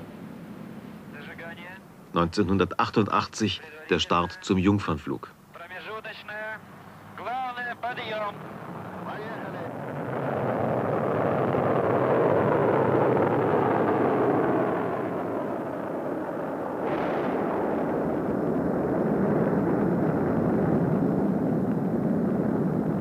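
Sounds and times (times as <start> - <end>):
rocket engine roar: 6.0 - 23.0.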